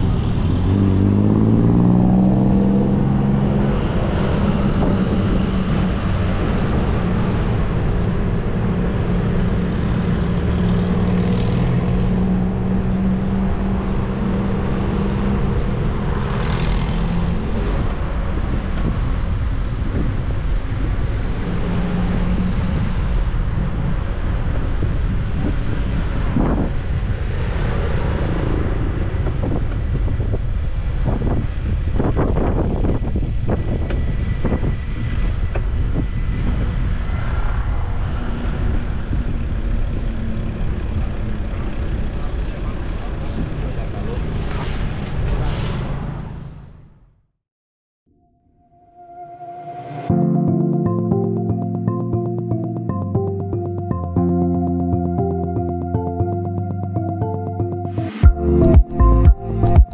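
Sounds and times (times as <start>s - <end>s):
wind on microphone: 0.0s - 10.4s, 11.8s - 40.9s
vehicle engine humming: 0.0s - 45.4s, 50.2s - 59.9s
city street traffic: 0.0s - 47.2s, 49.9s - 59.9s.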